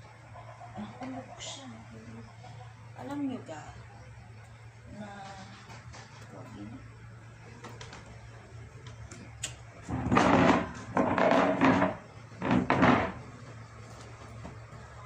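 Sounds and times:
plastic chair scraping across floor: 9.8 - 13.3.

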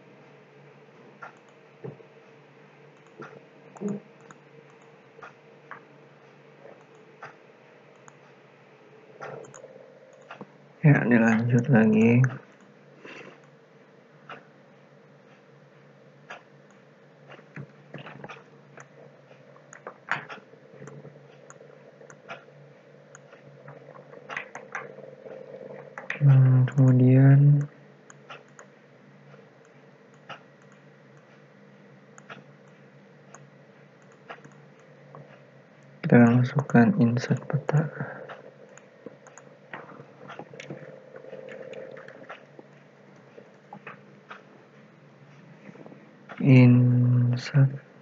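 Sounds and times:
faint steady hum: 0.0 - 48.0
computer mouse clicking: 1.2 - 2.0, 3.0 - 5.9, 6.6 - 8.4, 9.2 - 10.5, 16.3 - 22.5, 23.1 - 28.7, 29.6 - 31.4, 32.2 - 44.5.

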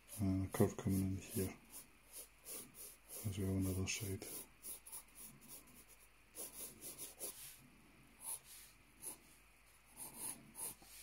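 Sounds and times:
pencil scratching on paper: 0.0 - 7.6, 8.2 - 9.3, 9.9 - 11.0.

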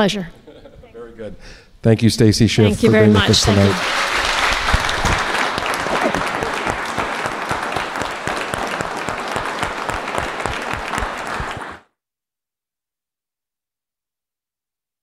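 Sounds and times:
audience applauding: 2.7 - 11.8.

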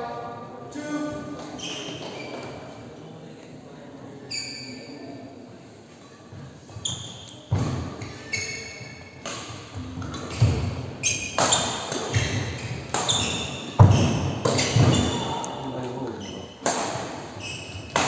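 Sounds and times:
shoes squeaking on wooden court: 1.3 - 2.8, 4.2 - 5.2, 6.0 - 18.0
racket hitting shuttlecock: 9.2 - 15.4, 16.6 - 18.0.

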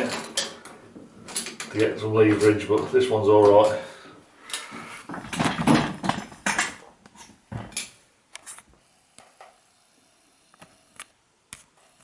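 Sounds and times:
metal tools rustling and clattering: 0.0 - 3.7, 4.5 - 8.0.

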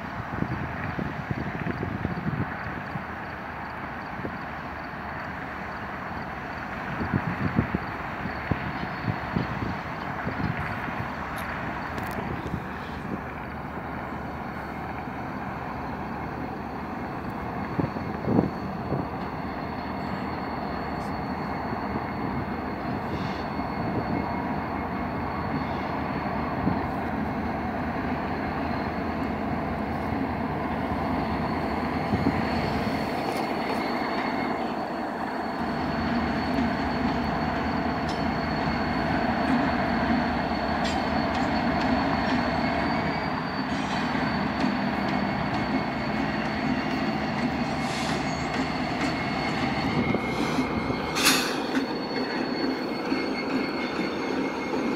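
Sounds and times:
freight train rumbling: 0.0 - 54.9
high-pitched wheel squeal: 14.1 - 54.9.

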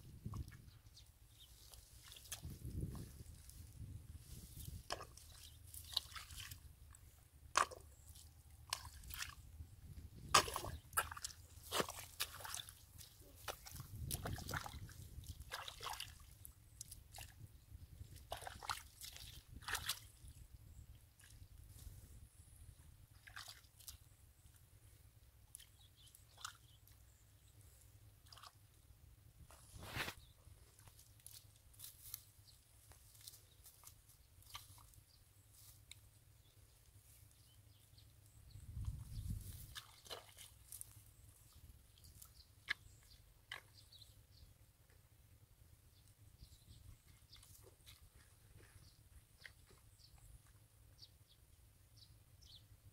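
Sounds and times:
muddy water dripping: 0.0 - 21.9, 23.1 - 27.4, 28.1 - 28.9, 30.7 - 44.1, 46.8 - 51.0
squelching in wet mud: 0.1 - 44.8, 45.8 - 51.4.

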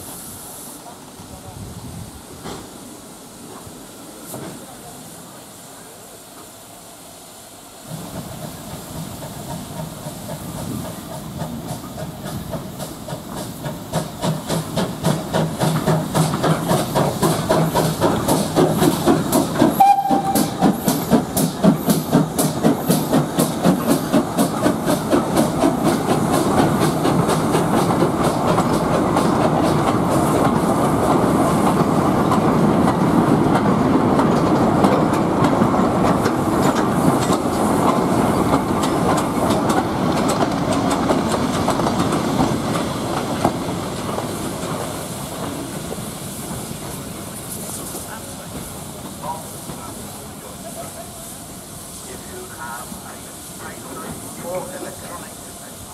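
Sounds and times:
steam locomotive exhaust beating: 6.1 - 55.9
freight wagons clicking over rail joints: 8.2 - 49.9.

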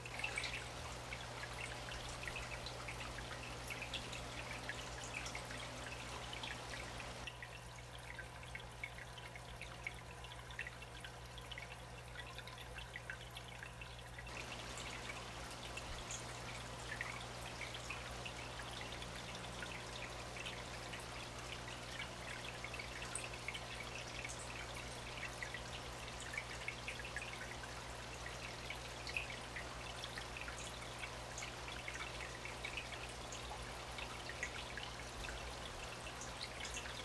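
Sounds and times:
low filter hum: 0.0 - 7.3, 14.2 - 26.2
aquarium water trickling and splashing: 0.0 - 37.0.

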